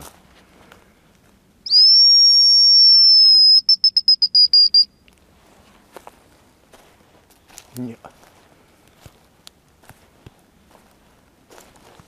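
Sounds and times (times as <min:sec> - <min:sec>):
bird decoy whistle: 0:01.7 - 0:05.0.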